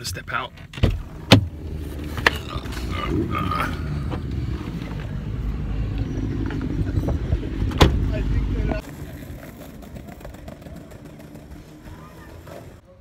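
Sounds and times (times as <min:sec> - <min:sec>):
car door shutting: 0:00.7 - 0:02.4, 0:07.6 - 0:08.2
wind buffeting microphone: 0:06.2 - 0:08.1.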